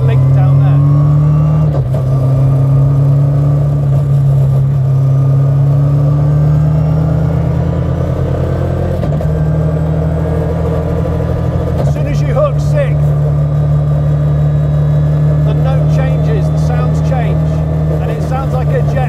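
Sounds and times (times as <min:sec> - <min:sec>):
car engine pulling heard from cabin: 0:00.0 - 0:19.0.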